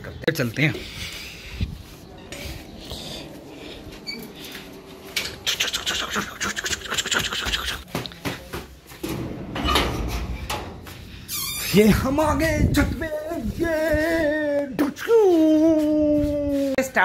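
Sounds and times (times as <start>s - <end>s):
footsteps on stairs: 7.8s - 9.4s, 10.4s - 11.2s.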